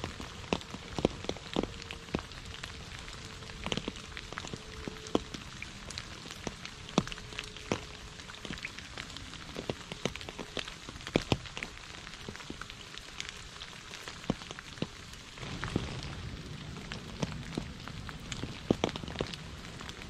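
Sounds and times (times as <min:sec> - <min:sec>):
rain falling on puddles: 0:00.0 - 0:20.0
low rumble: 0:15.4 - 0:20.0.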